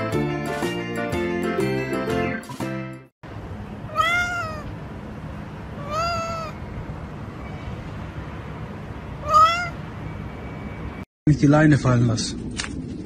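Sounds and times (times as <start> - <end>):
cat meowing: 3.9 - 4.7, 5.8 - 6.6, 9.2 - 9.8.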